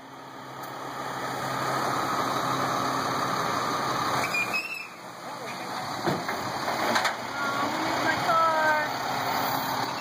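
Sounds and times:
vehicle engine running: 0.0s - 10.0s
high squeal: 4.2s - 5.0s.

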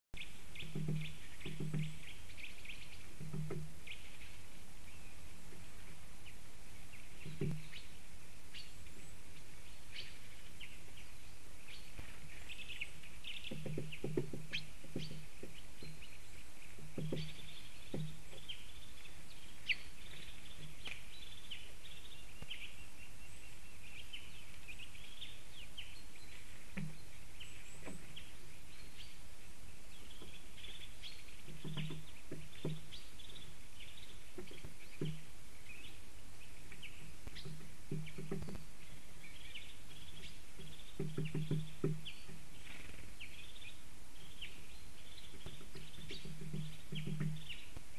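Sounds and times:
songbirds chirping: 0.2s - 47.9s
soft low knocks: 0.5s - 4.2s, 7.1s - 7.9s, 13.3s - 19.0s, 26.7s - 28.3s, 30.1s - 35.3s, 37.0s - 38.8s, 40.5s - 42.7s, 45.2s - 47.6s.

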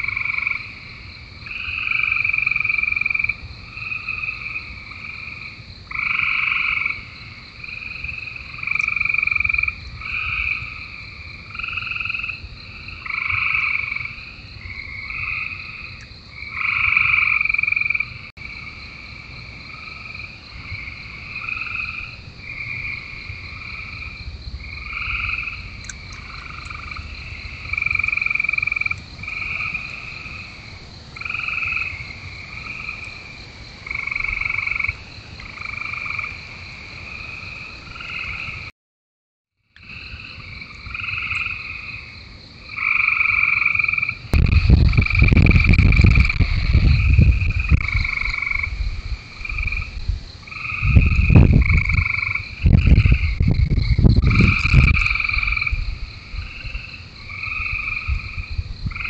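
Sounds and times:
frogs calling: 0.0s - 38.7s, 39.6s - 59.0s.

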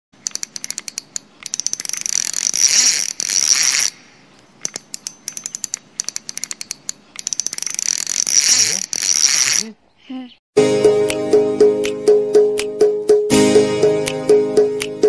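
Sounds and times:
fishing reel clicking: 0.2s - 4.0s, 4.6s - 9.7s
high-pitched reel whirr: 0.2s - 9.7s.

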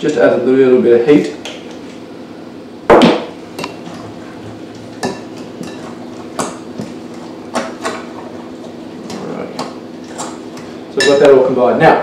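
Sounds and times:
loud knock: 2.9s - 3.4s
utensil stirring in glass bowl: 3.6s - 11.2s.

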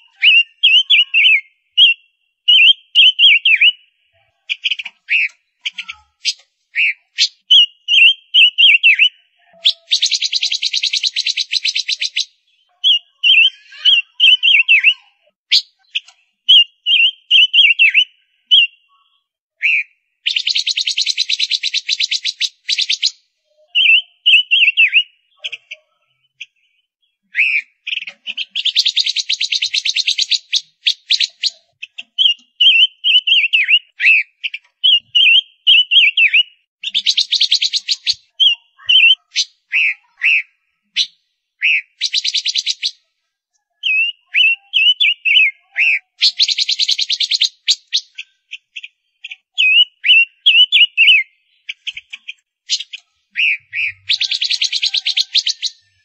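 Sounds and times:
bird high whistled notes: 6.2s - 18.7s, 32.2s - 43.0s, 43.8s - 48.2s, 52.7s - 56.0s.

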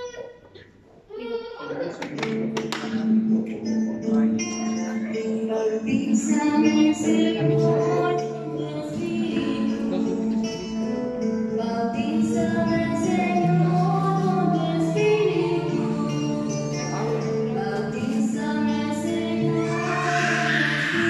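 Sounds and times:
woman singing: 4.2s - 10.6s, 11.4s - 21.0s.

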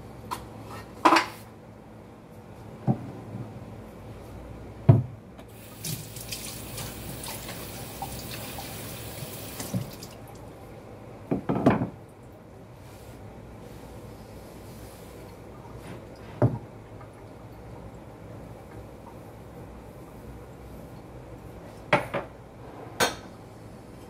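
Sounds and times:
tap running into a sink: 5.8s - 10.1s.

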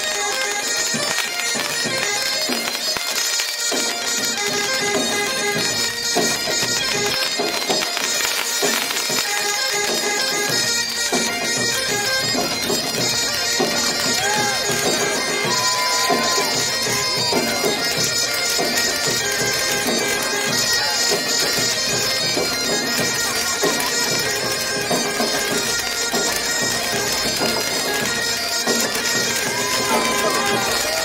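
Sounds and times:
bagpipes playing: 0.0s - 31.0s
sharp cracks: 0.1s - 31.0s.

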